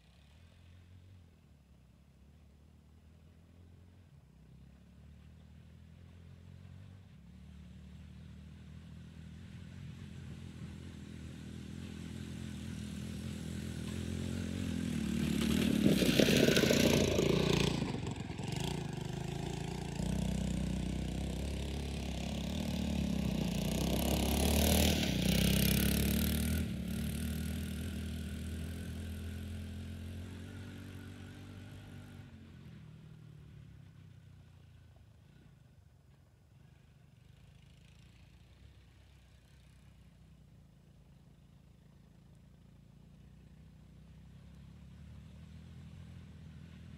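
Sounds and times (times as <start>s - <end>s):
riding mower engine passing: 4.4s - 35.8s, 36.6s - 46.9s.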